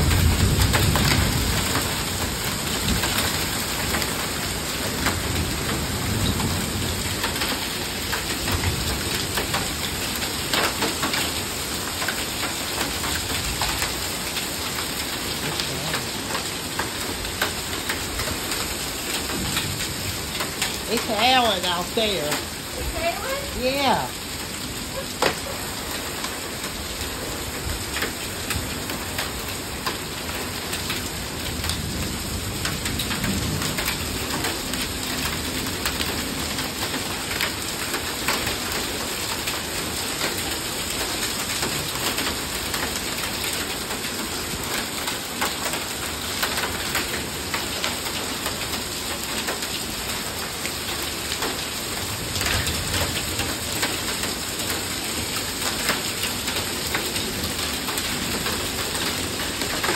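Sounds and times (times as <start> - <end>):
low thunder rumbling: 0.0 - 3.3
heavy rain pouring: 0.0 - 59.9.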